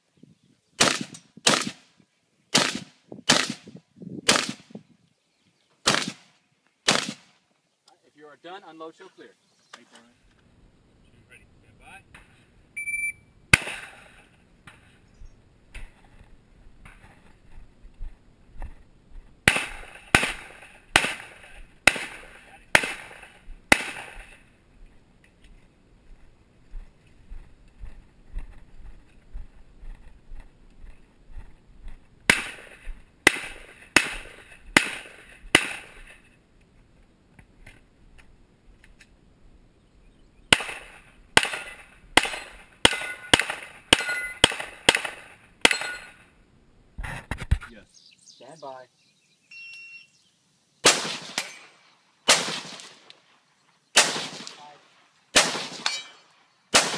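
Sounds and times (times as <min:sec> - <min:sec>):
pistol shots: 0:00.8 - 0:01.8, 0:02.5 - 0:04.7, 0:05.8 - 0:07.4, 0:13.5 - 0:14.2, 0:19.5 - 0:24.4, 0:32.3 - 0:36.1, 0:40.5 - 0:46.2, 0:50.8 - 0:53.2, 0:54.0 - 0:56.9
shot timer beep: 0:12.8 - 0:13.3, 0:49.5 - 0:50.1.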